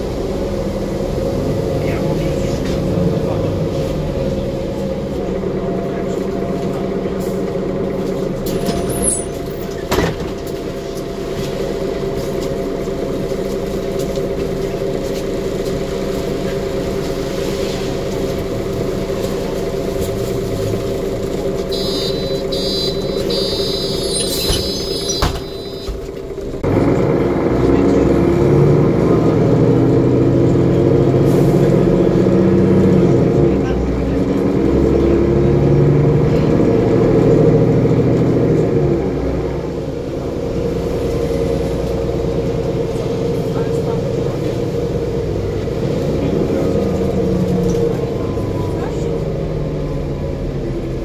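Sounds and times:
bus diesel engine: 0.0 - 51.0
high beeping: 21.7 - 26.0.

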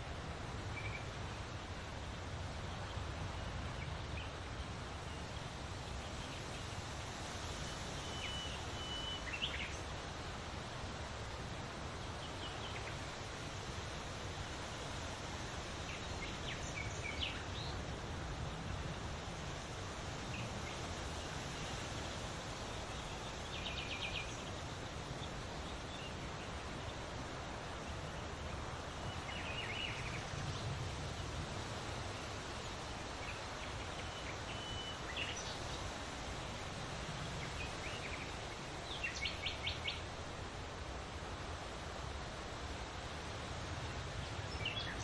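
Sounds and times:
songbirds chirping: 0.0 - 45.0
wind rustling leaves: 0.0 - 45.0.

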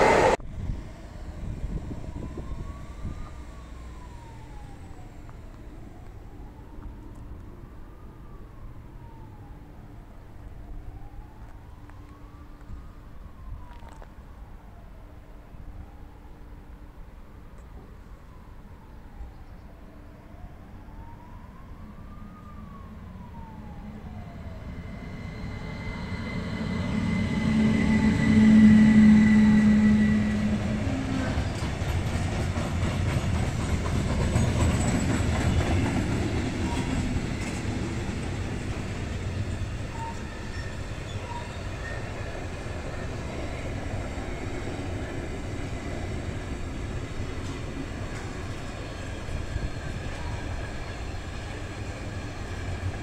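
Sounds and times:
distant siren wailing: 0.0 - 53.0
electric locomotive hum: 0.0 - 53.0
freight wagons rolling on rails: 29.7 - 53.0.

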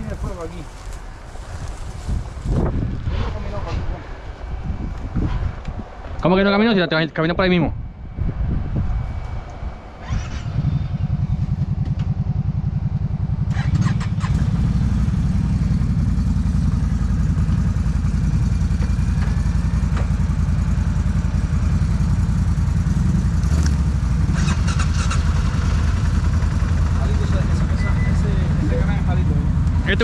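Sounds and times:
atv engine running: 10.0 - 30.0.

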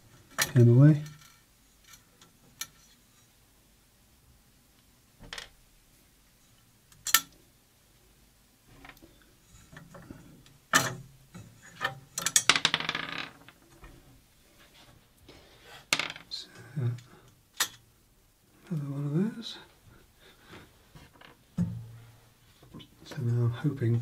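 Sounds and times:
small metal parts clicking: 7.0 - 7.4, 11.8 - 12.7.

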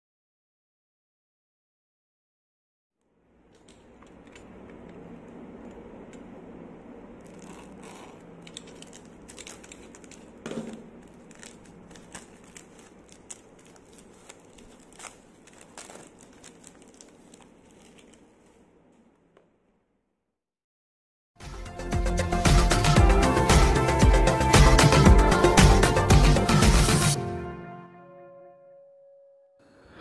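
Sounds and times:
plastic ripping: 7.2 - 18.6
plastic shrink-wrap crinkling: 7.2 - 19.3.

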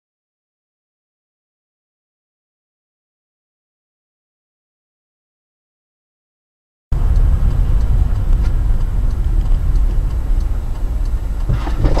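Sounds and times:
car interior rumble: 6.9 - 12.0.

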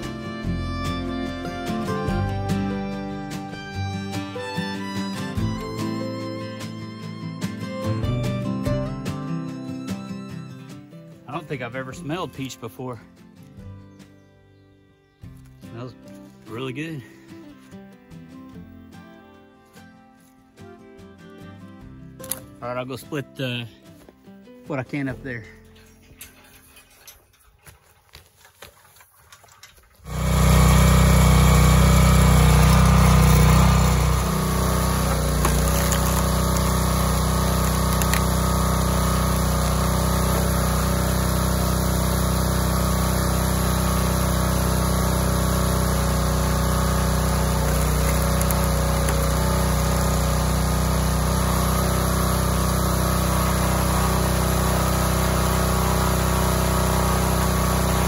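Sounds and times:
small gasoline engine running: 0.0 - 6.3, 30.0 - 58.0.

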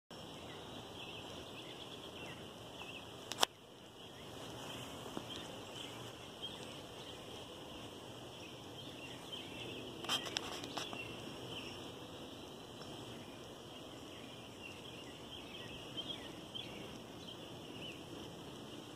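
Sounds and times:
small birds chirping: 0.1 - 18.9
steady high hiss: 0.1 - 18.9
sharp clicks: 3.2 - 3.6.

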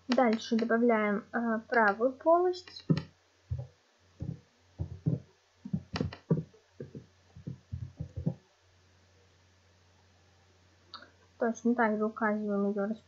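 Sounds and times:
faint low hum: 0.0 - 13.0
keyboard typing: 2.6 - 8.4.

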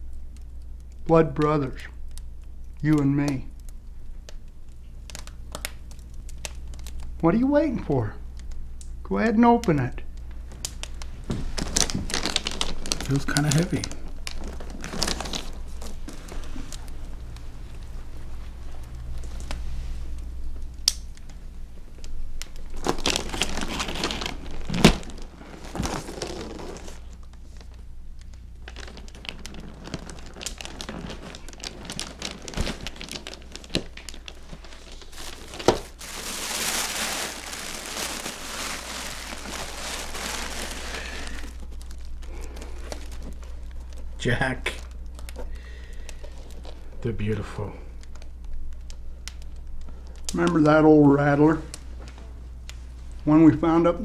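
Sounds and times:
paper crumpling and tearing: 10.6 - 17.2, 22.5 - 27.8, 28.6 - 45.4.

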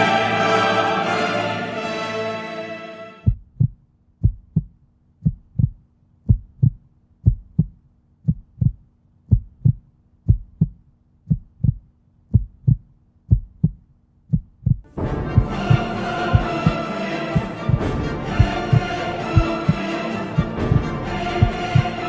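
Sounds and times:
heartbeat thumps: 3.2 - 16.8, 17.4 - 19.8, 20.4 - 22.0.

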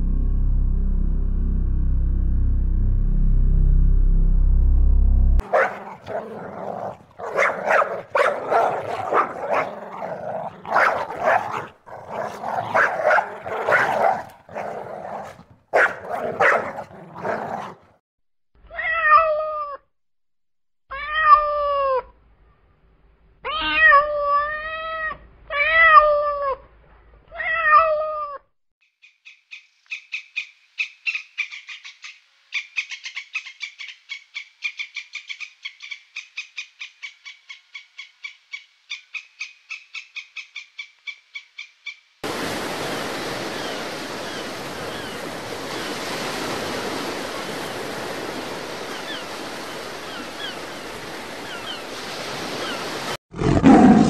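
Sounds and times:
kitten meowing: 23.5 - 26.6.

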